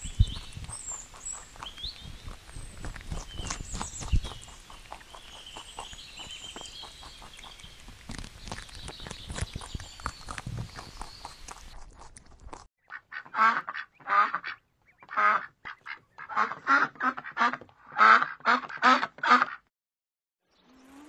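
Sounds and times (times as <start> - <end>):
duck quacking: 12.8 - 19.7.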